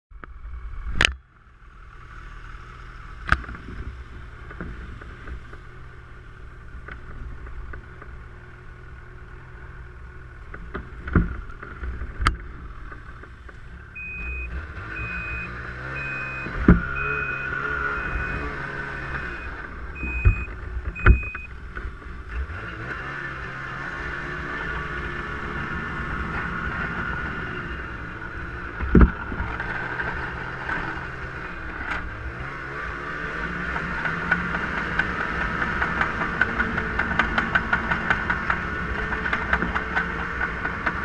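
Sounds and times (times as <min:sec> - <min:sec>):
high electronic beep: 0:14.0 - 0:21.5.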